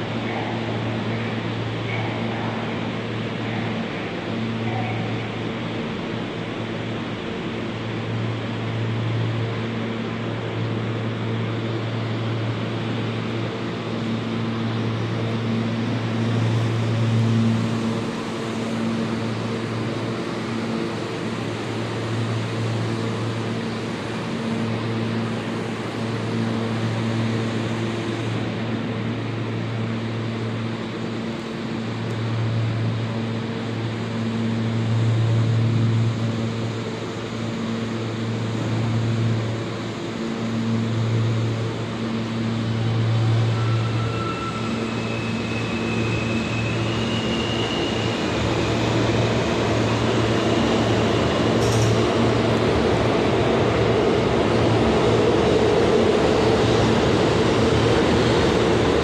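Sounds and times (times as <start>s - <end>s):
faint high squeals: 43.0s - 48.5s.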